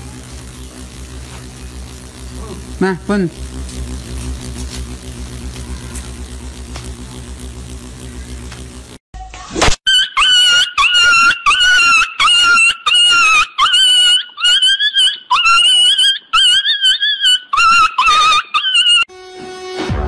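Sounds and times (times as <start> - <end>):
high-pitched yelping: 9.9 - 19.1.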